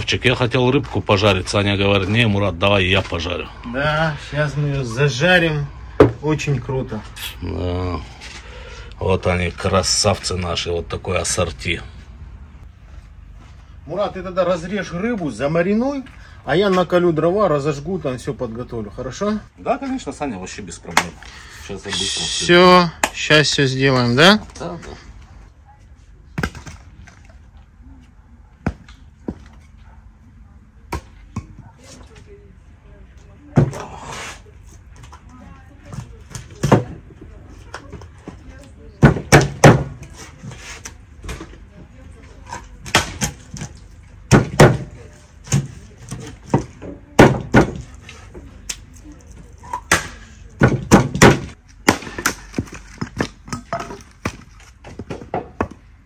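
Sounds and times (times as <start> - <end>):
hatchet chopping firewood: 23.0 - 23.3, 39.0 - 40.0, 42.5 - 47.9, 49.6 - 55.8
axe striking wood: 39.0 - 40.0, 42.8 - 43.4, 44.3 - 45.7, 46.5 - 47.9, 49.8 - 54.4.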